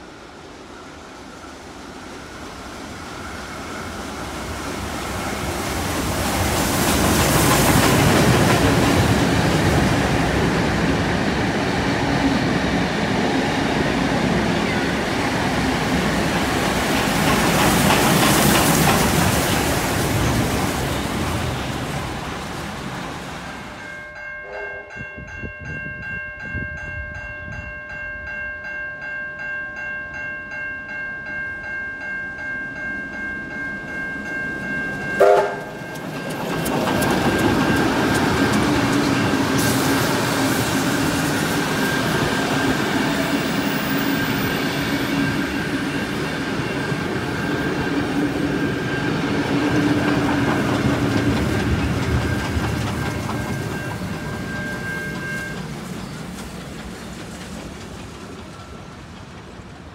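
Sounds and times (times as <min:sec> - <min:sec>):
train wheels clattering on rails: 0:03.1 - 0:23.8, 0:34.5 - 0:59.9
level crossing bells ringing: 0:23.8 - 0:36.5
steam whistle blast: 0:35.2 - 0:35.8.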